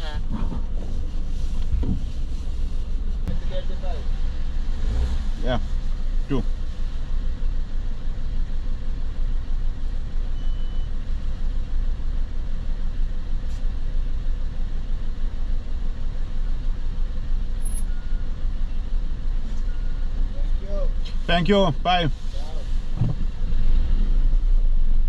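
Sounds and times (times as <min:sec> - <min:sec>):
vehicle engines idling: 0:00.0 - 0:25.0
short high beep: 0:10.4 - 0:10.9, 0:17.6 - 0:18.3.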